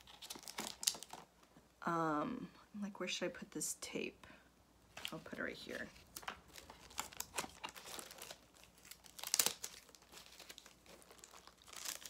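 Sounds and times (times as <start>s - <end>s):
wrapping paper crinkling and tearing: 0.0s - 1.2s, 5.0s - 12.0s.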